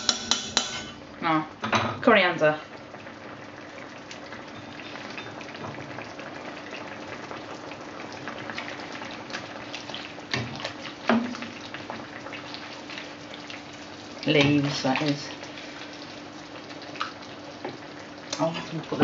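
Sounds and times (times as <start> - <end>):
spatula knocking on pan: 0.0 - 1.0
spatula stirring: 0.0 - 1.0
curry bubbling in a pan: 2.6 - 19.0.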